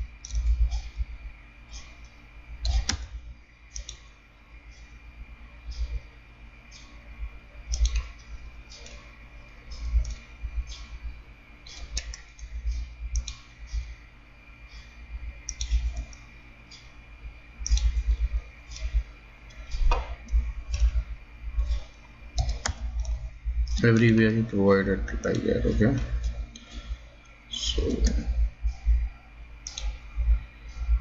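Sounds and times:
computer mouse clicking: 0:00.2 - 0:00.9, 0:01.8 - 0:03.1, 0:03.7 - 0:04.1, 0:07.7 - 0:09.1, 0:09.7 - 0:11.0, 0:11.6 - 0:14.0, 0:14.8 - 0:16.9, 0:17.6 - 0:21.0, 0:21.6 - 0:24.1, 0:29.6 - 0:30.0.

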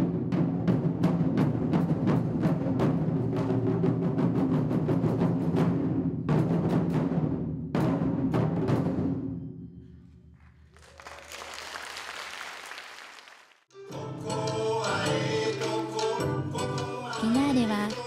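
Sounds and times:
taiko drums: 0:00.0 - 0:09.6
applause: 0:10.4 - 0:13.7
folk dance song: 0:12.8 - 0:18.0.

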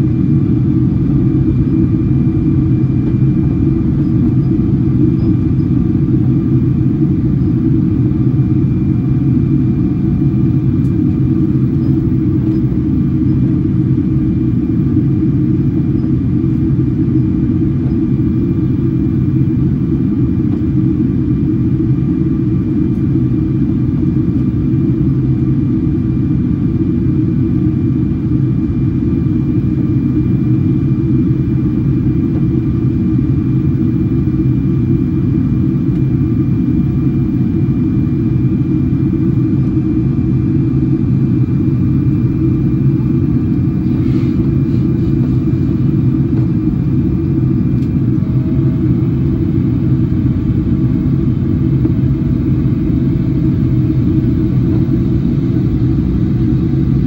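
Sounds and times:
rumble of engines and airflow: 0:00.0 - 0:57.0.

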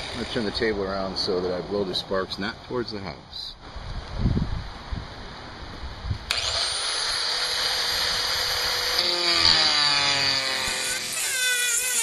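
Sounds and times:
angle grinder whine: 0:00.0 - 0:00.5, 0:06.3 - 0:12.0
grinder cutting into steel: 0:00.0 - 0:00.5, 0:06.3 - 0:12.0.

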